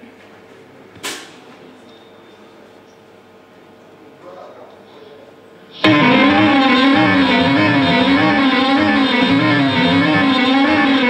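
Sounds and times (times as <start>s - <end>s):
live rock band playing: 5.8s - 11.0s.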